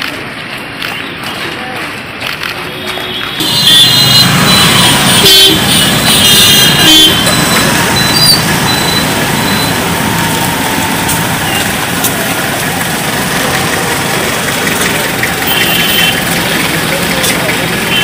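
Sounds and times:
road traffic engines running: 0.0 - 18.0.

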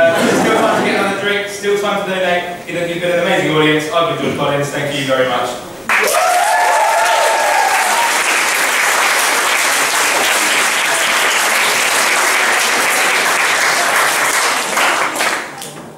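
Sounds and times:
audience applauding: 5.9 - 15.8.

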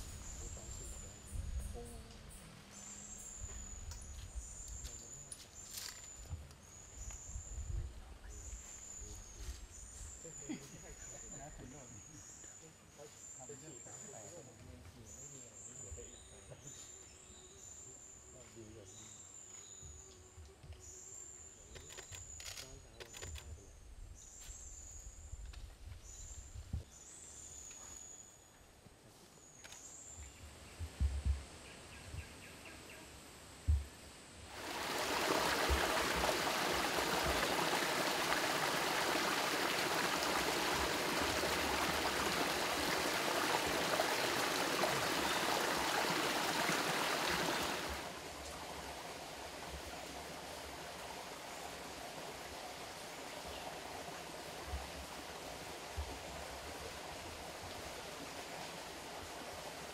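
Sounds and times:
stream splashing over rocks: 34.5 - 59.9.

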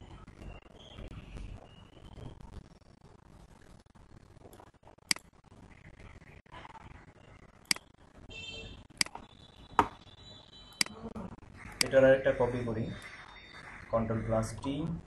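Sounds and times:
faint room noise: 0.0 - 15.0
computer mouse clicks: 7.6 - 7.9.

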